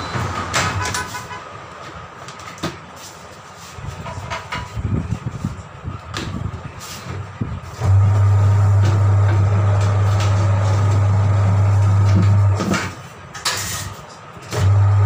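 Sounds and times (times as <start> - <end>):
turntable motor humming: 7.8 - 12.6, 14.6 - 15.0.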